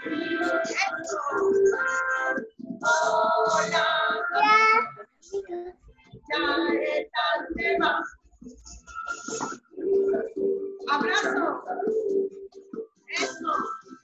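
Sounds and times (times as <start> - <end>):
high childlike voice singing: 0.0 - 5.7.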